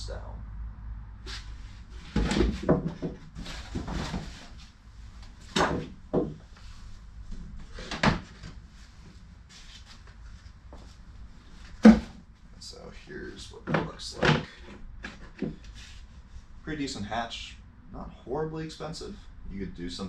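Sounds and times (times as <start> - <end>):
objects knocking and clunking: 2.0 - 4.5, 5.4 - 6.6, 11.7 - 12.2, 13.6 - 15.7.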